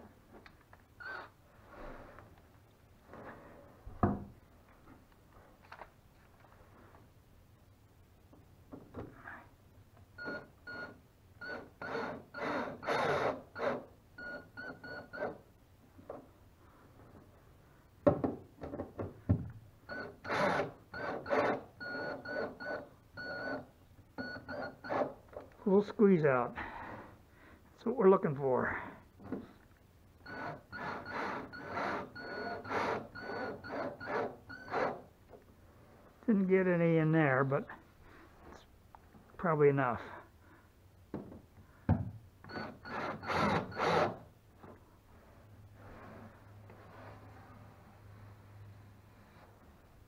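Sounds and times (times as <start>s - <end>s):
cordless drill driving a screw: 11.5s - 13.9s, 20.3s - 23.6s, 30.3s - 35.0s, 42.5s - 44.2s.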